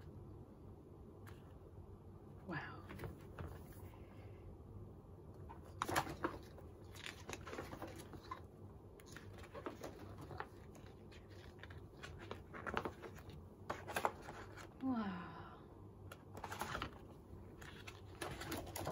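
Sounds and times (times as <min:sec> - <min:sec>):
pages turning: 0:05.5 - 0:14.7, 0:16.3 - 0:18.9.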